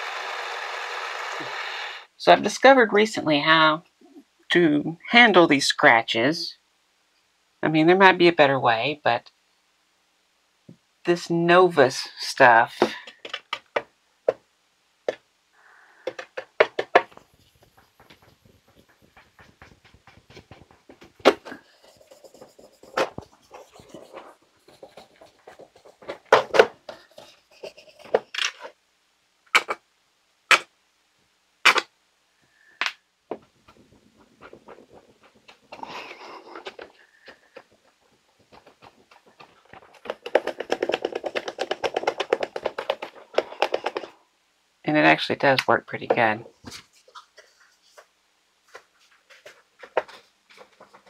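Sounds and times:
plastic clicks and knocks: 16.0 - 21.5, 36.6 - 44.2
cloth rubbing plastic: 16.1 - 28.8, 33.3 - 44.2.

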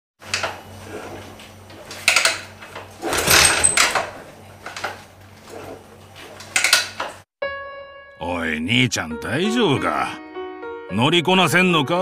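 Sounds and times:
kick-start lever clanks: 1.8 - 5.0, 6.4 - 7.2.

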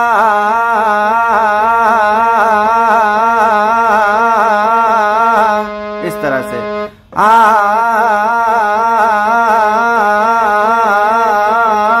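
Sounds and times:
harmonium drone: 0.0 - 12.0
man singing on an open vowel: 0.0 - 12.0.

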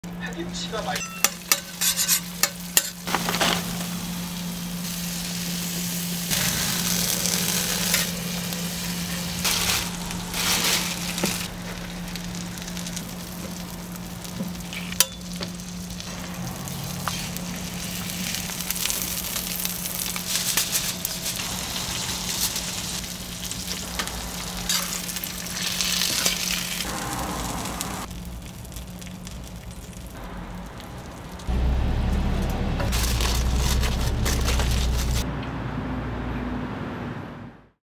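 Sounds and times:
low hum: 0.0 - 35.5
utensil scraping griddle: 1.0 - 4.0, 5.6 - 11.8, 16.7 - 26.8
food sizzling on a griddle: 1.2 - 30.2.

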